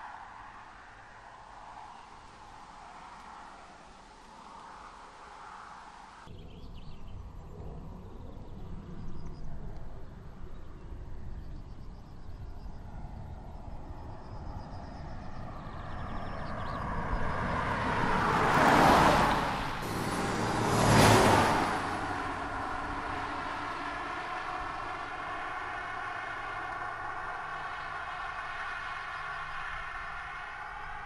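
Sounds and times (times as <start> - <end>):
diesel car engine driving past: 15.3 - 31.0.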